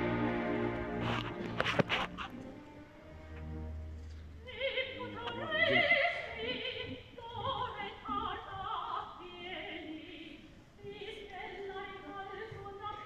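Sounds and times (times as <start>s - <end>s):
orchestra playing: 0.0s - 4.0s
woman operatic singing: 4.4s - 13.0s.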